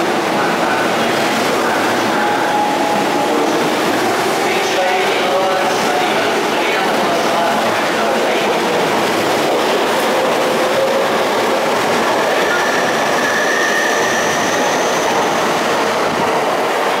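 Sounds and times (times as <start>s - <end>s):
electric train passing: 0.0s - 17.0s.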